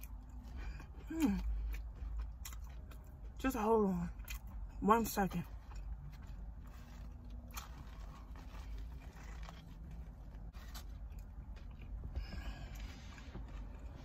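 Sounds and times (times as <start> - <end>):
person chewing food: 0.0 - 4.8, 5.4 - 14.0
low steady rumble: 0.0 - 14.0.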